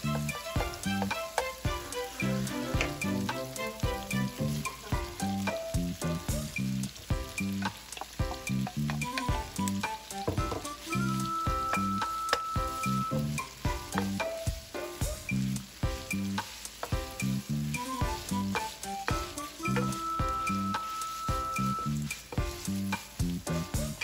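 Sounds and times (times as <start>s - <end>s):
wooden spoon scraping pan: 0.0s - 5.7s, 15.6s - 23.2s
background music with steady beat: 0.0s - 24.0s
food sizzling in frying pan: 0.0s - 24.0s.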